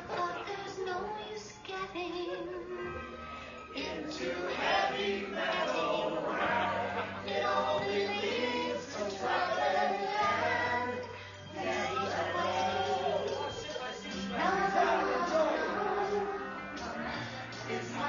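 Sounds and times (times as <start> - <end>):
rock song with vocals: 3.8 - 18.0.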